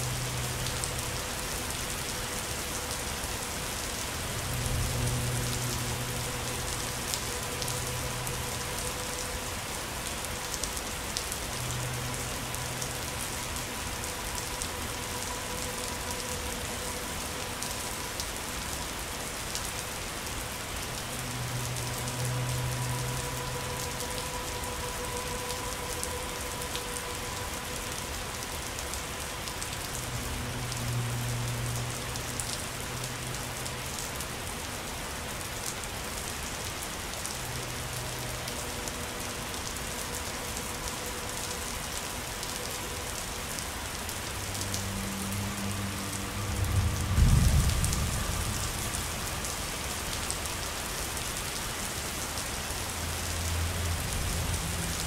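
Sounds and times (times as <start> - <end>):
steady rain falling: 0.0 - 55.0
low rumble: 46.4 - 49.2.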